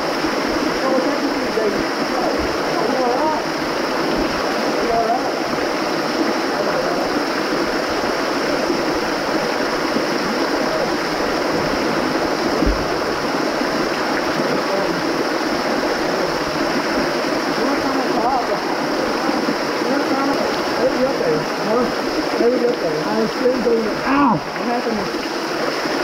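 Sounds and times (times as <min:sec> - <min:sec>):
waterfall splashing into pool: 0:00.0 - 0:26.0
brief low thump: 0:12.6 - 0:12.9.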